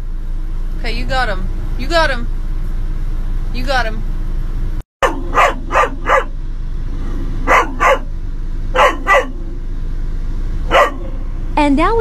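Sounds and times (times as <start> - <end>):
puppy barking: 5.0 - 6.4, 7.0 - 9.6, 10.6 - 11.3.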